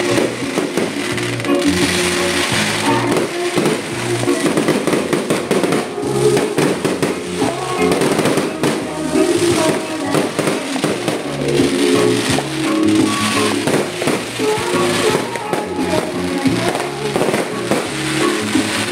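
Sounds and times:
firecrackers crackling and popping: 0:00.0 - 0:18.9
music playing: 0:00.0 - 0:18.9.

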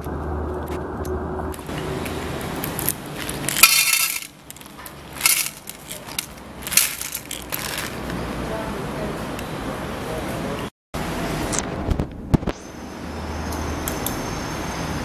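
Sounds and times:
kibble rattling into tin can: 0:02.6 - 0:08.1.

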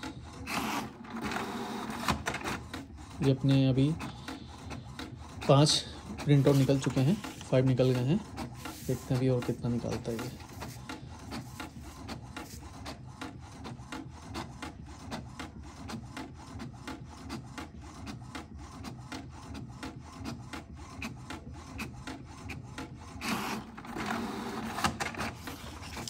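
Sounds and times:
printer ticking: 0:00.0 - 0:26.0.

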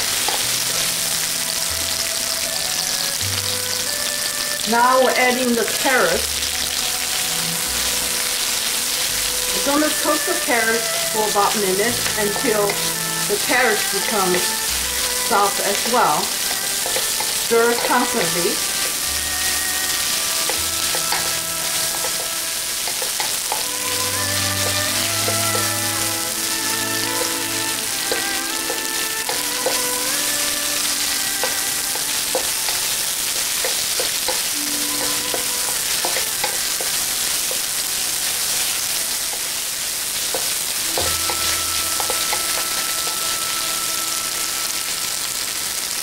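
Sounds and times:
vegetables sizzling in oil: 0:00.0 - 0:46.0
spatula scraping metal wok: 0:08.1 - 0:39.5, 0:40.3 - 0:44.4.

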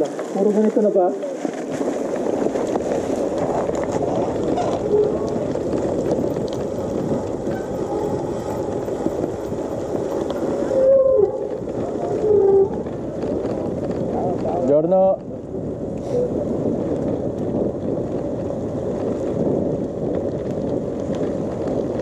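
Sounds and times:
tyre rumble on gravel: 0:00.0 - 0:15.8
wind on microphone: 0:00.0 - 0:22.0.

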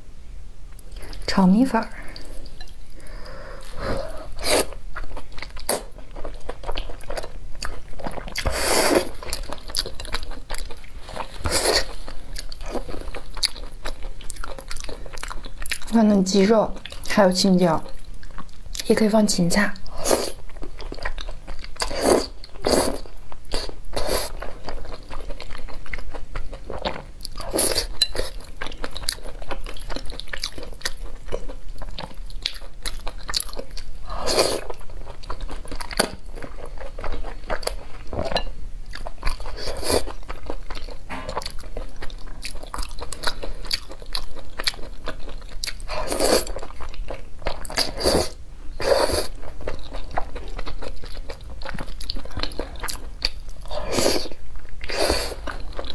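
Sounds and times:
person slurping noodles: 0:03.6 - 0:04.8, 0:08.4 - 0:09.1
wet chewing and mouth noises: 0:03.6 - 0:17.2, 0:17.8 - 0:19.0, 0:19.8 - 0:55.9.

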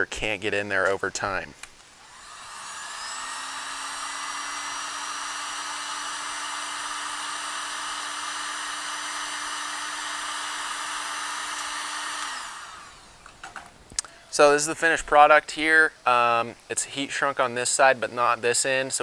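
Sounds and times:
heat gun fan humming: 0:01.6 - 0:14.7
heat gun winding down: 0:02.0 - 0:13.3.

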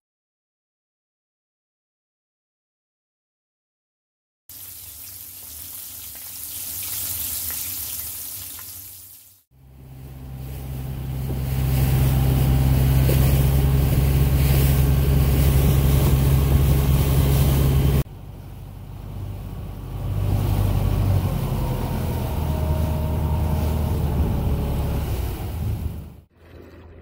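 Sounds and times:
boat engine running: 0:09.6 - 0:27.0.

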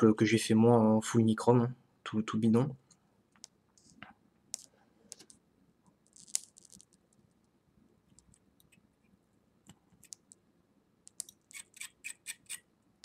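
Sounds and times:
faint small clicks and taps: 0:02.9 - 0:05.4.

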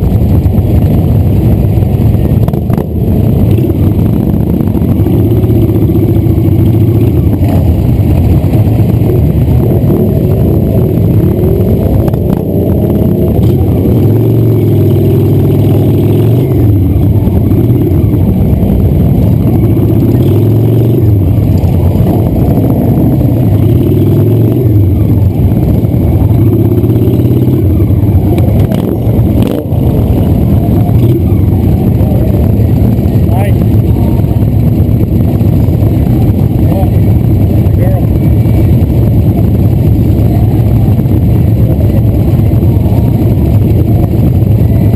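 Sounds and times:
motorcycle engine revving: 0:00.0 - 0:44.9
other motorcycles running: 0:00.0 - 0:44.9.

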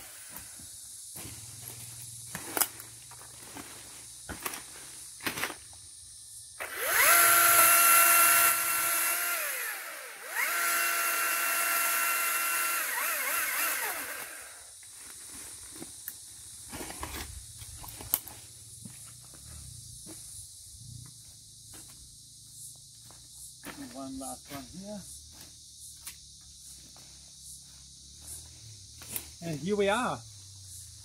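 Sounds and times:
pole saw whining: 0:06.6 - 0:14.7.

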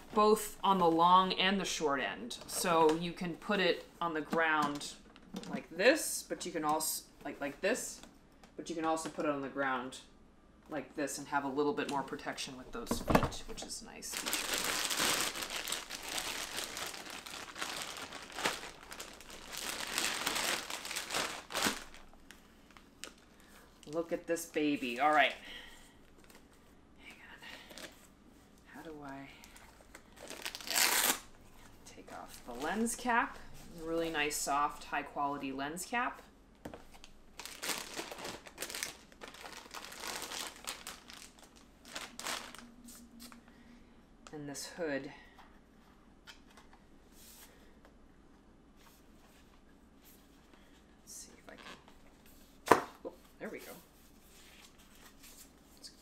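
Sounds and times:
plastic bag rustling: 0:13.6 - 0:25.4, 0:29.7 - 0:31.3, 0:36.9 - 0:43.3.

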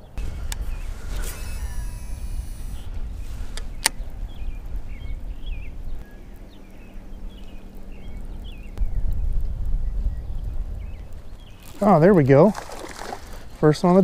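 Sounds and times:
wind rumble on microphone: 0:00.0 - 0:14.0
reel spool whirring: 0:00.2 - 0:02.9
small bird chirping: 0:03.6 - 0:09.2.

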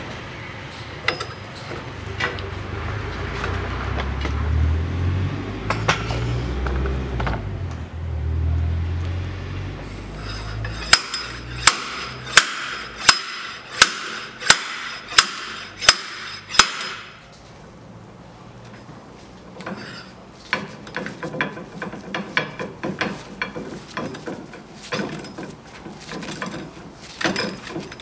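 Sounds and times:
slide hammer metallic clanks: 0:10.6 - 0:17.2.

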